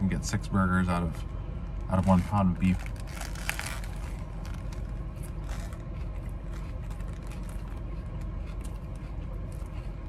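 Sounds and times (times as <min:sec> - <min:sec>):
car cabin rumble: 0:00.0 - 0:10.0
person chewing: 0:02.8 - 0:10.0.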